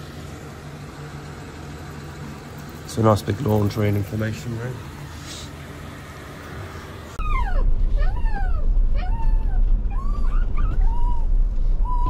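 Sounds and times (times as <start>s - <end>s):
wind rumble on microphone: 7.2s - 12.0s.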